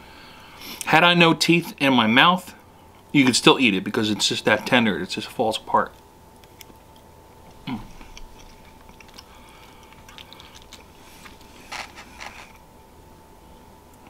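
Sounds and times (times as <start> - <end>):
person chewing food: 6.4 - 12.6.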